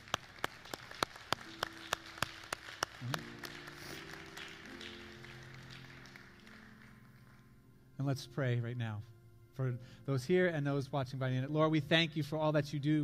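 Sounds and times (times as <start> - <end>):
person clapping steady beat: 0.0 - 7.4
congregation applause: 0.0 - 7.6
soft sustained music chords: 0.0 - 13.0.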